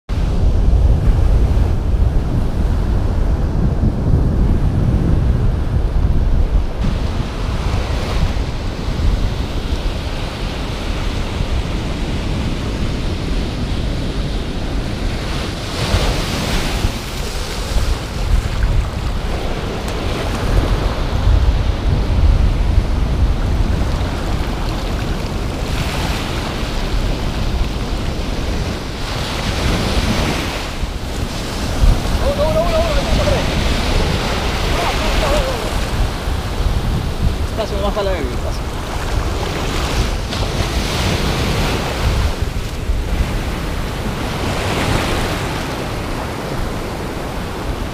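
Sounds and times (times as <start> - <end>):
surf washing up beach: 0.1 - 47.9
wind buffeting microphone: 0.1 - 47.9.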